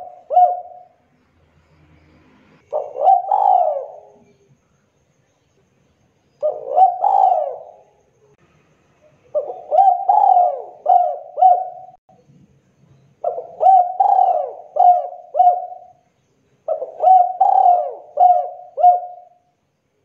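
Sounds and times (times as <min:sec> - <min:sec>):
dove cooing: 0:00.0 - 0:01.0, 0:02.6 - 0:04.4, 0:06.4 - 0:08.0, 0:09.3 - 0:12.0, 0:13.2 - 0:16.0, 0:16.6 - 0:19.4.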